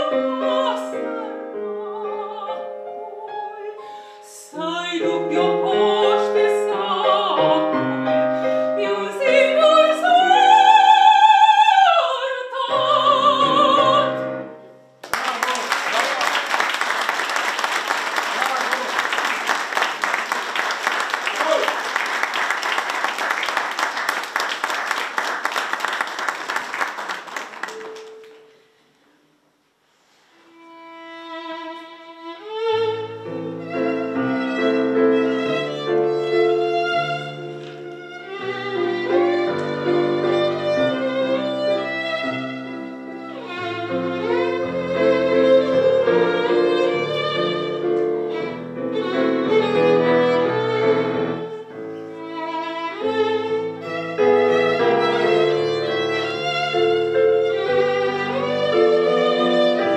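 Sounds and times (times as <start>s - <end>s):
piano accompaniment: 0.0s - 15.0s, 19.4s - 28.8s, 30.6s - 59.9s
applause: 15.0s - 28.5s
violin playing with vibrato: 30.4s - 59.9s.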